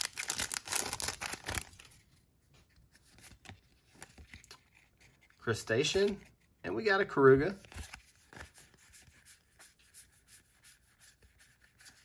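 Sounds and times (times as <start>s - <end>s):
foil wrapper tearing and crinkling: 0.0s - 1.9s
cards rustling: 0.0s - 12.0s.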